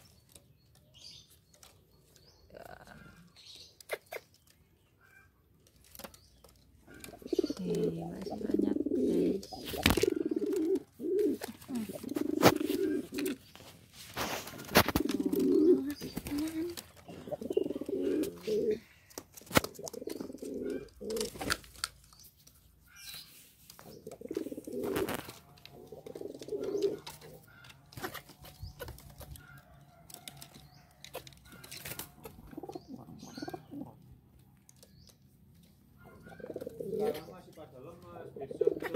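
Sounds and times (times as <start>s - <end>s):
pigeons cooing: 1.0s - 21.9s, 23.7s - 35.0s, 35.9s - 38.9s
wings flapping: 6.9s - 22.0s.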